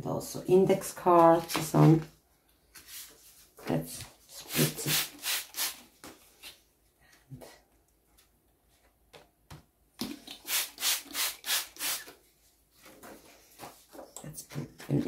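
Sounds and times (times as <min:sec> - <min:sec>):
spray bottle squirts: 0:04.6 - 0:05.8, 0:10.0 - 0:12.2.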